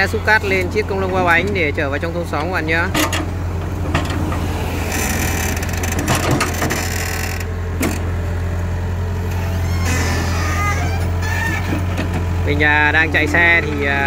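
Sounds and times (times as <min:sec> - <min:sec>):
excavator diesel engine running: 0:00.0 - 0:14.0
metal clanks: 0:02.9 - 0:04.4.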